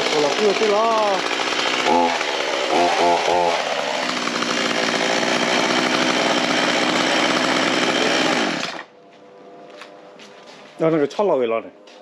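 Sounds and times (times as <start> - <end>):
chainsaw running: 0.0 - 8.9.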